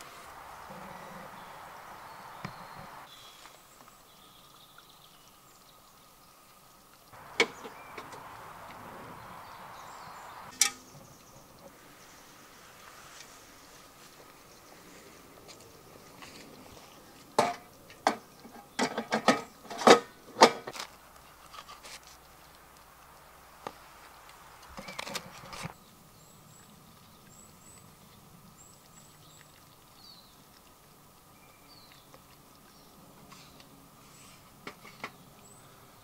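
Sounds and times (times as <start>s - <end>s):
faint high bird chirps: 0.7s - 6.0s, 7.2s - 12.4s
sharp knocks and clatters: 17.4s - 20.9s.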